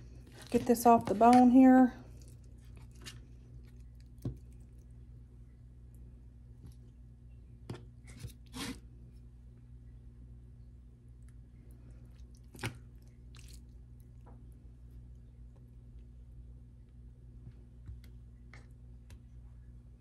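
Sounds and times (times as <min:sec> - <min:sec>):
meat squishing and tearing: 0:00.0 - 0:01.4, 0:02.1 - 0:05.0, 0:12.0 - 0:14.3
steady low hum: 0:00.0 - 0:20.0.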